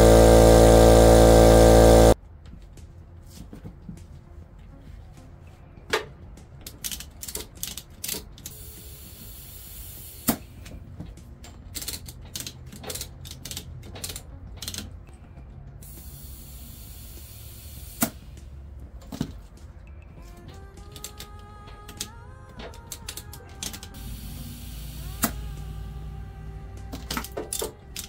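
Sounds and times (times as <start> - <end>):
compressed air hissing: 0.0 - 2.2, 8.5 - 10.6, 15.8 - 18.5, 24.0 - 26.2
sharp snap: 25.0 - 25.5.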